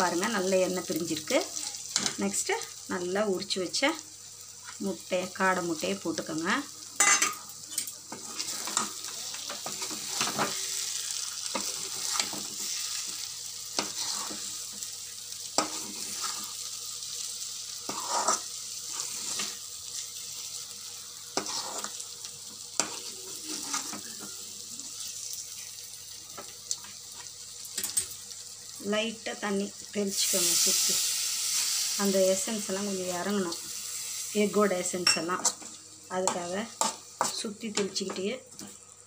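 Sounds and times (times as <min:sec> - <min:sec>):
masala sizzling in a pan: 0:00.0 - 0:39.0
metal ladle scraping a pan: 0:13.8 - 0:14.5, 0:15.6 - 0:16.6, 0:17.8 - 0:19.6, 0:21.3 - 0:22.0, 0:22.8 - 0:24.0.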